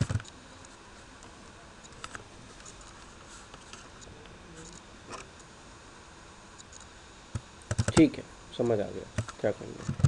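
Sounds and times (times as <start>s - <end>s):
steady low hiss: 0.0s - 10.0s
keyboard key presses: 7.7s - 8.1s.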